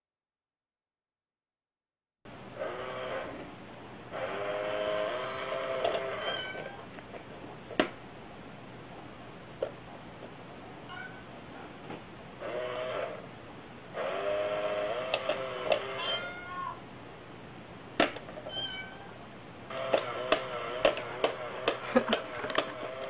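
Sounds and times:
cat meowing: 0:06.1 - 0:06.8, 0:10.9 - 0:11.3, 0:16.0 - 0:16.8, 0:18.5 - 0:19.2.

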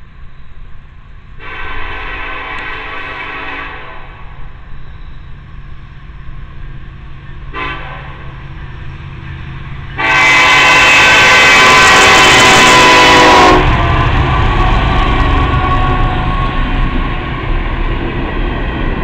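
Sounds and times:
diesel locomotives rumbling past: 0:00.0 - 0:19.0
locomotive horn blast: 0:01.4 - 0:04.4, 0:07.5 - 0:08.4, 0:09.9 - 0:17.0.

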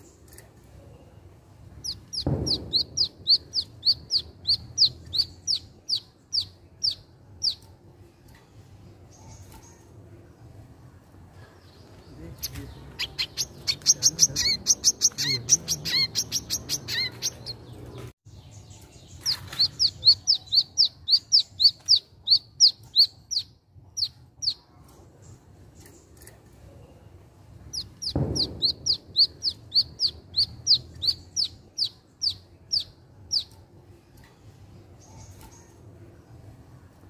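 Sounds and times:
low thump: 0:02.0 - 0:05.1, 0:28.0 - 0:29.7.

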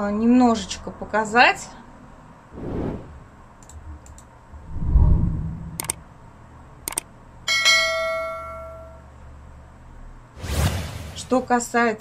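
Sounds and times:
sharp mouse clicks: 0:05.8 - 0:06.0, 0:06.8 - 0:07.1
bright bell ding: 0:07.5 - 0:09.0.

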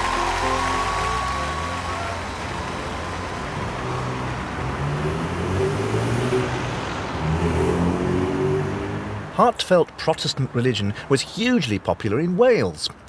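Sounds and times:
car driving past: 0:00.2 - 0:09.3.

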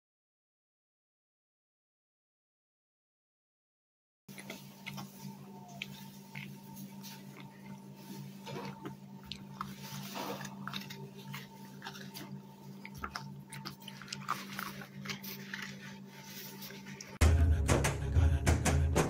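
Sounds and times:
dog crunching treats: 0:04.3 - 0:17.2
faint steady hum: 0:04.3 - 0:18.9.

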